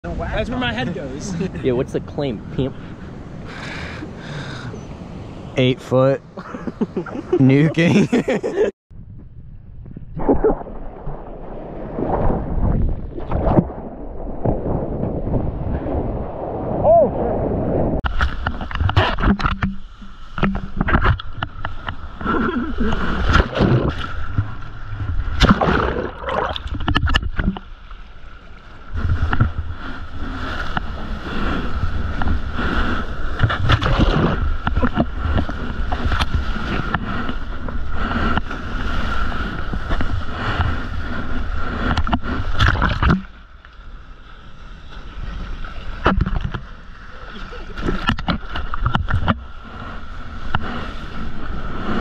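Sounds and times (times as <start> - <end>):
wind noise on microphone: 8.9 - 27.7, 28.9 - 43.4
water splashing and rushing: 10.0 - 52.0.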